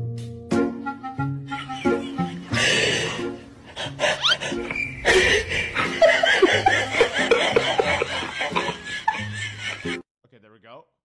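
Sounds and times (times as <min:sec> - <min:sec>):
person laughing: 0:01.5 - 0:03.0, 0:04.0 - 0:10.0.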